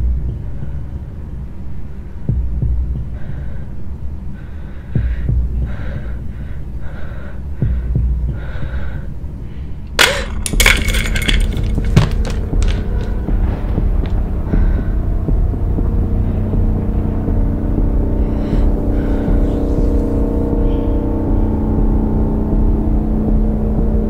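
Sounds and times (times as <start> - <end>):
low hum: 0.0 - 24.0
deep heartbeat thumps: 2.3 - 3.2, 5.0 - 6.0, 7.5 - 9.0, 10.4 - 24.0.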